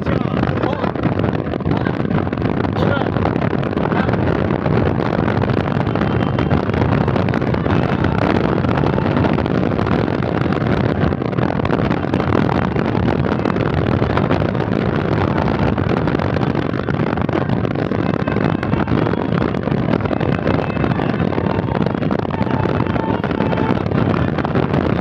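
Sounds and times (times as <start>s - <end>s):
road and wind noise inside vehicle: 0.0s - 25.0s.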